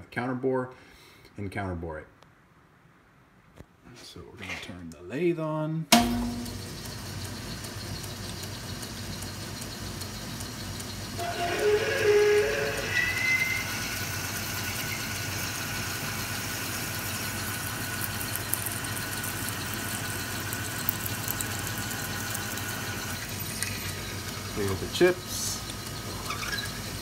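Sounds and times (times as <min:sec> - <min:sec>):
lathe motor hum and hiss: 0:06.4 - 0:27.0
drill whine biting metal: 0:11.2 - 0:27.0.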